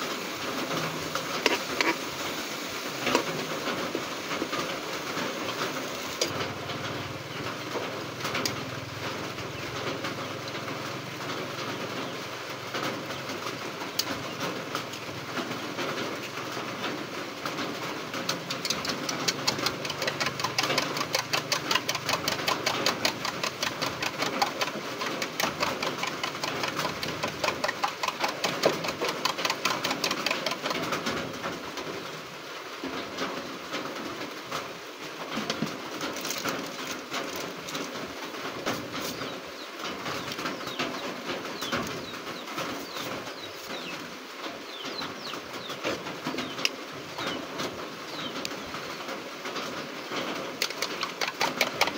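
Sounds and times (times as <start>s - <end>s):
spoon beating eggs in bowl: 18.7s - 30.8s, 50.6s - 51.9s.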